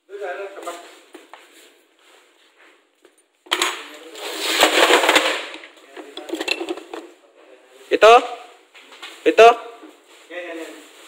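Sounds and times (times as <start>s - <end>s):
small metal parts rattling: 4.6s - 7.1s.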